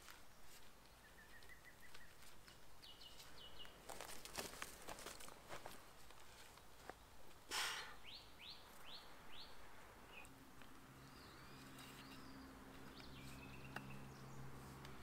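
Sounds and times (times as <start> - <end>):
bird chirping: 0.4 - 4.0, 7.8 - 14.9
rope rustling and scraping: 11.5 - 13.7.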